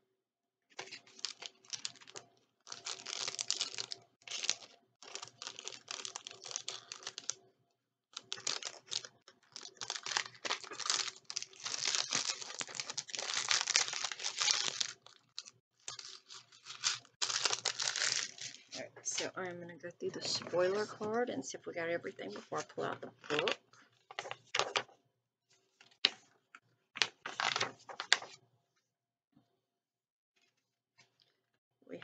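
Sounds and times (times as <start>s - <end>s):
paper packaging rustling: 0.7s - 7.4s, 8.2s - 18.8s, 22.4s - 24.9s, 27.0s - 28.4s.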